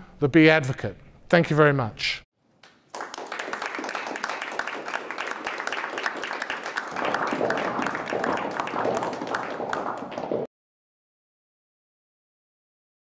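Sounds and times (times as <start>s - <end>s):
audience applauding: 2.6s - 10.5s.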